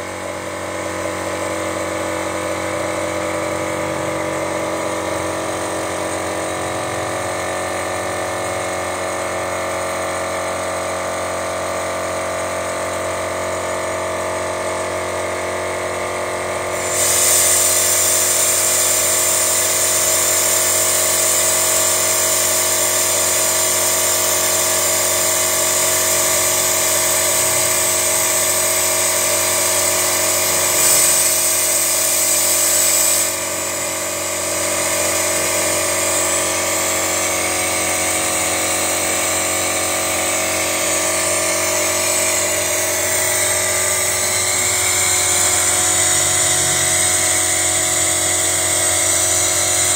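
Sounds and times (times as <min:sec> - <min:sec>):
pump mechanical whine: 0:00.0 - 0:49.9
loud high hiss of spray: 0:16.7 - 0:33.8.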